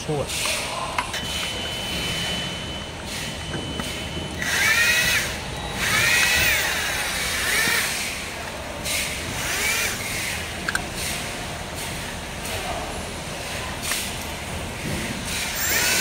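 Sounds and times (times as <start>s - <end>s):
cordless drill whining: 4.4s - 8.2s, 15.4s - 16.0s.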